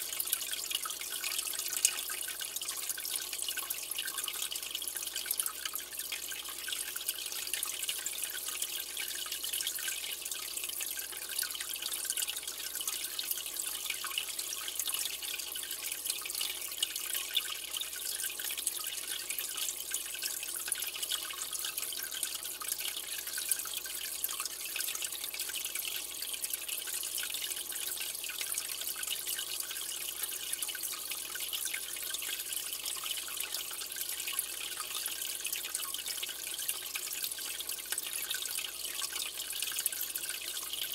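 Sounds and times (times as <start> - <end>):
aquarium water trickling and bubbling: 0.0 - 40.9.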